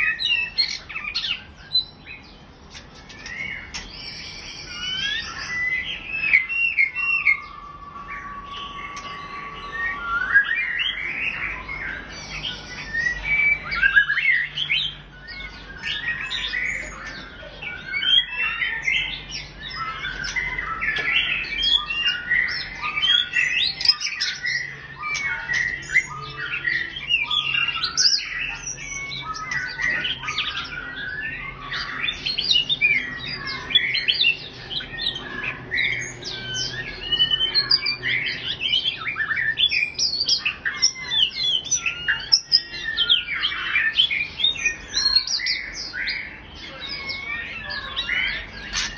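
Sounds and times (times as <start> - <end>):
bird singing whistles and trills: 0.0 - 48.9.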